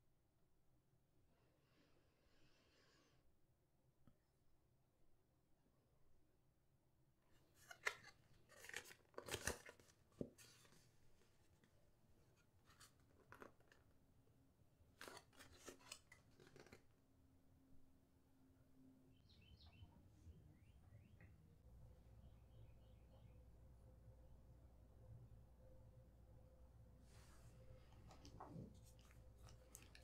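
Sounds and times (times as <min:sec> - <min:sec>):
photo paper rasping and crackling: 0:15.0 - 0:16.8.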